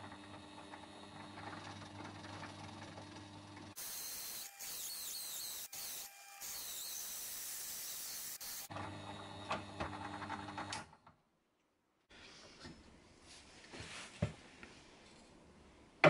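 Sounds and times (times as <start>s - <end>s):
drill press motor hum: 0.0s - 10.8s.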